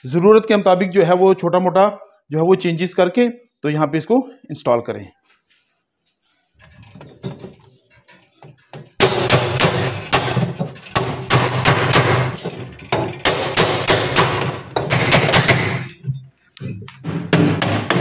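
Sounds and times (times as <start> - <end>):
hammer beating metal pipe: 8.7 - 18.0.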